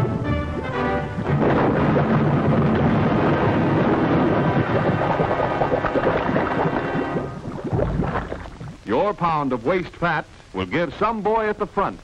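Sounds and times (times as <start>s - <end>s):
orchestral music: 0.0s - 2.4s
dense underwater rumble: 0.0s - 8.9s.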